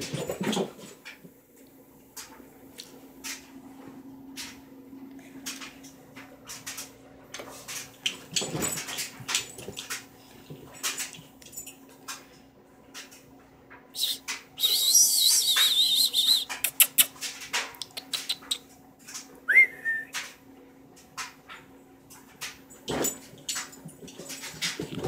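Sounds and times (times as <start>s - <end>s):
clicks and bumps of scrambling: 22.2s - 25.0s.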